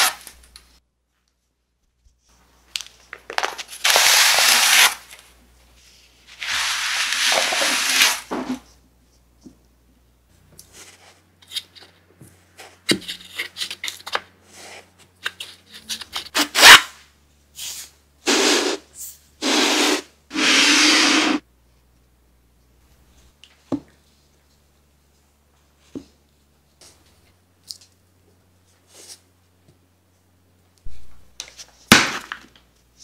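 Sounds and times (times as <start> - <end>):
sand rubbed by hand: 6.3 - 8.3.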